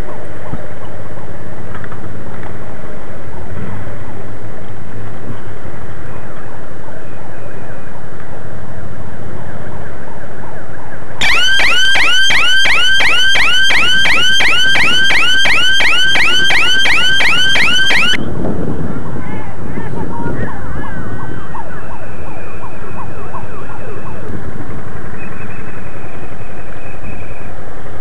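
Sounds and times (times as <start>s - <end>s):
wind noise on microphone: 0.0s - 28.0s
electronic siren yelping: 11.2s - 18.2s.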